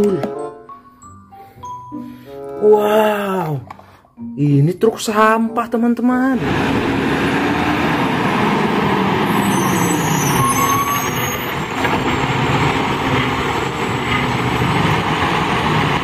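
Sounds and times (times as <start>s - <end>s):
garbage truck running: 6.4s - 16.0s
high squeal: 9.1s - 12.5s.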